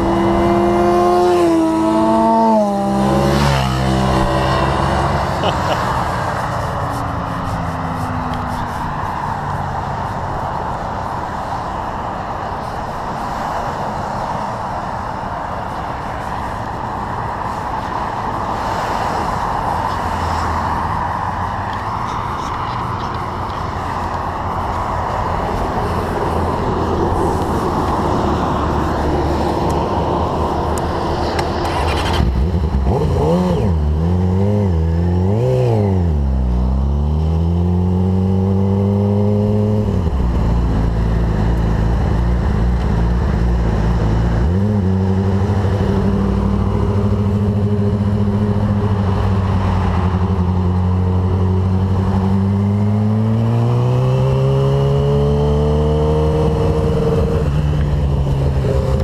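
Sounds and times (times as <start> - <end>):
motorcycle engine revving: 0.0 - 9.9, 25.6 - 59.0
freeway traffic: 0.0 - 59.0
wind: 0.0 - 59.0.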